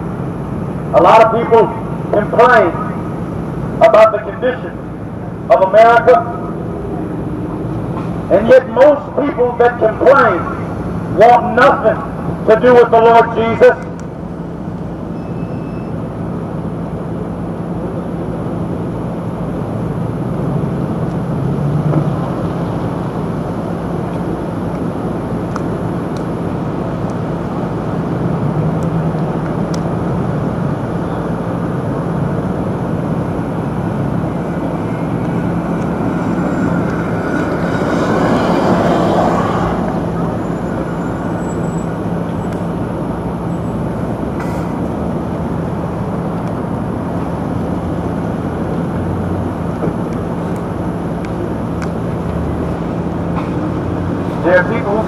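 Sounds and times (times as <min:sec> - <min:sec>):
car engine humming: 0:00.0 - 0:55.0
car passing: 0:20.2 - 0:46.2.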